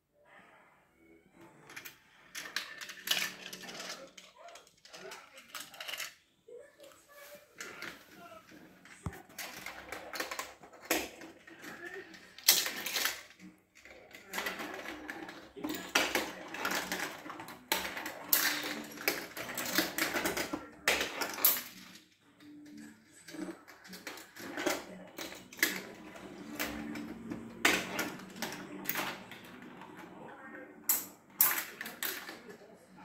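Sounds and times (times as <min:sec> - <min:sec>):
marbles rolling on plastic track: 0:01.6 - 0:06.2, 0:09.0 - 0:22.2, 0:22.8 - 0:32.7
marbles clicking and clacking: 0:01.7 - 0:06.2, 0:09.3 - 0:22.0.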